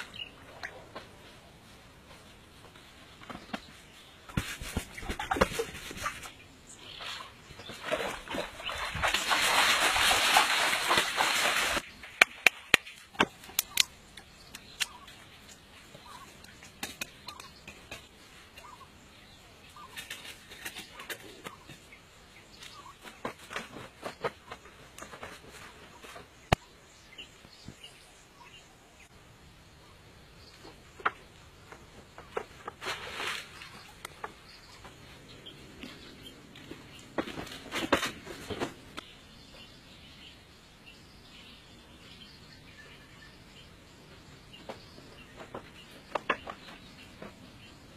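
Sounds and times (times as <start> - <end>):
water splashing: 7.2 - 13.8.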